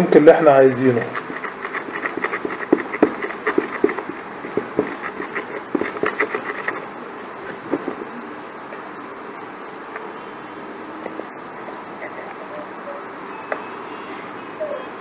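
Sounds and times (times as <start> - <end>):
wooden stick stirring plaster: 0.8 - 6.8, 7.7 - 8.1
stick knocking against tub: 1.2 - 6.8.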